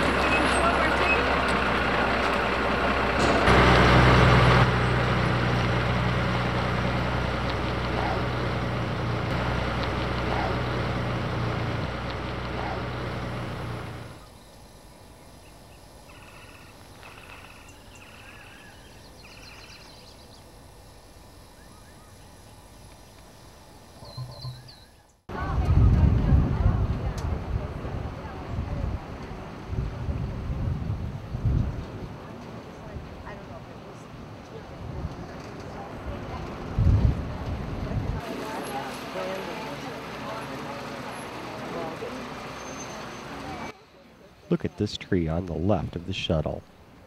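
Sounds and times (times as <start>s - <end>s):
tram towing vehicle passing: 0.0s - 14.3s, 31.8s - 43.8s
faint high bird chirps: 15.4s - 20.5s, 24.0s - 25.2s.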